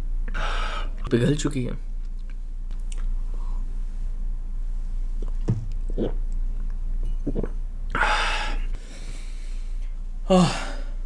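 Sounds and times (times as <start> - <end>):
man gulping: 5.2 - 6.4, 7.0 - 8.0.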